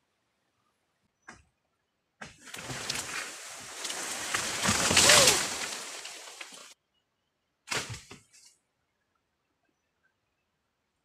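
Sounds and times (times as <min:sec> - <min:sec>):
leaves and branches rustling: 0:02.3 - 0:06.8
branch creaking: 0:02.4 - 0:06.8.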